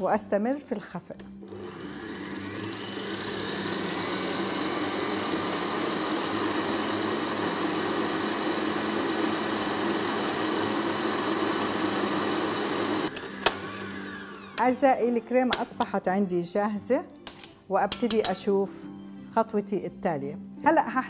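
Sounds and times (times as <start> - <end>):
stand mixer whipping cream: 1.4 - 14.6.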